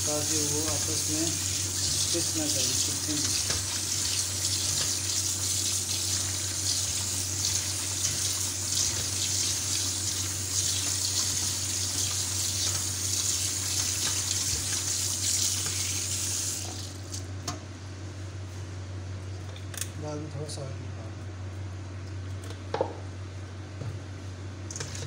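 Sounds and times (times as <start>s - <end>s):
tap water running into a colander: 0.0s - 17.3s, 24.7s - 25.0s.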